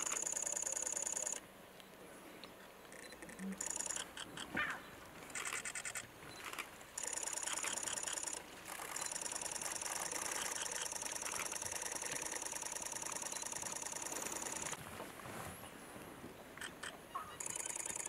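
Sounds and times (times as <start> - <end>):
high-pitched insect call: 0.0 - 1.4, 2.9 - 4.4, 7.0 - 14.8, 16.6 - 18.0.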